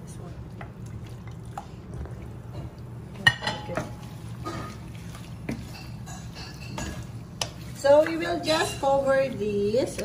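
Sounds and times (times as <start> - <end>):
metal cookware clinking: 3.2 - 4.7, 5.6 - 7.1, 7.8 - 9.3.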